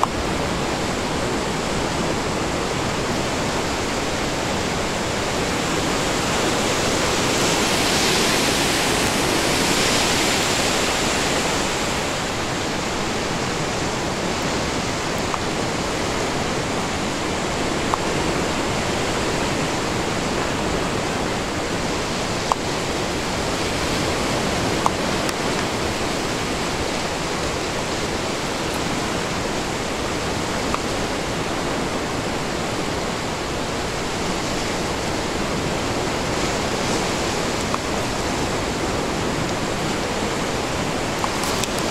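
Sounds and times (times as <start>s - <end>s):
river rushing over rocks: 0.0s - 41.9s.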